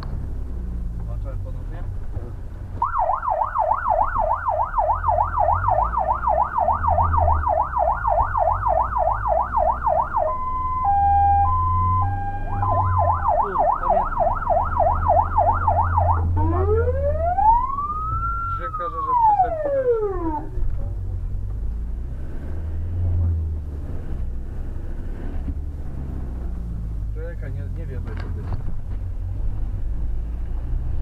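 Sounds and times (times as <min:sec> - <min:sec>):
truck engine drone: 0:00.0 - 0:31.0
electronic siren: 0:02.8 - 0:20.5.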